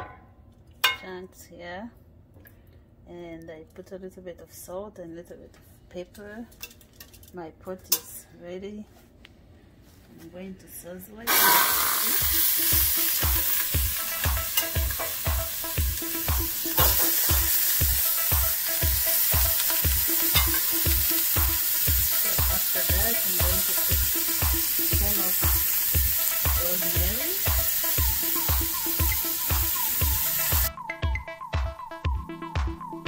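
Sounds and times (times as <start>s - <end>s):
meat sizzling in hot oil: 11.3s - 30.7s
background music with steady beat: 11.8s - 33.0s.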